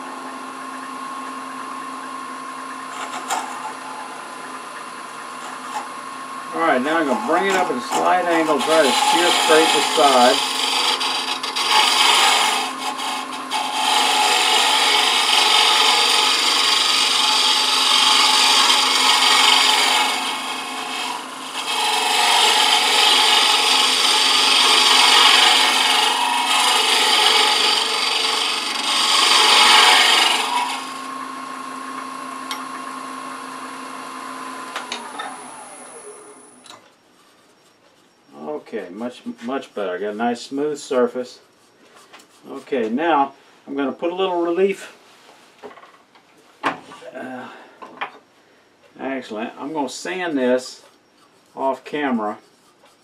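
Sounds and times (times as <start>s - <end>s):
wood lathe humming: 0.0s - 37.8s
tool rasping cut on wood: 5.2s - 31.2s.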